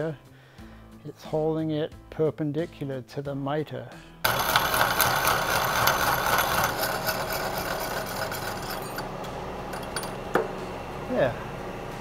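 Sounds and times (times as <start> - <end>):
hole saw cutting metal: 4.3 - 9.1
spindle motor hum: 4.3 - 12.0.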